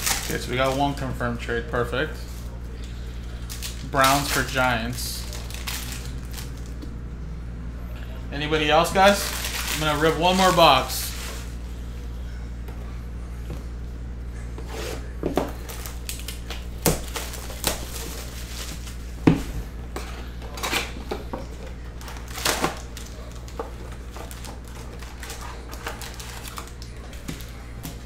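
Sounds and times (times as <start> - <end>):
foil packs tearing and crinkling: 0.0 - 1.0, 3.3 - 6.8, 9.0 - 11.5, 15.6 - 19.0, 22.0 - 27.6
low electrical hum: 0.0 - 28.0.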